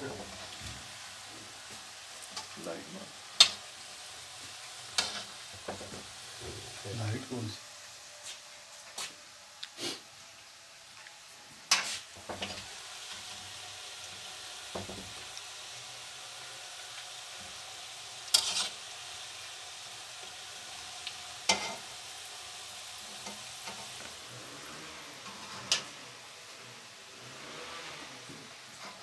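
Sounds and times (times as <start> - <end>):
food sizzling in hot oil: 0.0 - 29.0
metal tongs clacking on pan: 3.4 - 3.6, 21.5 - 21.8.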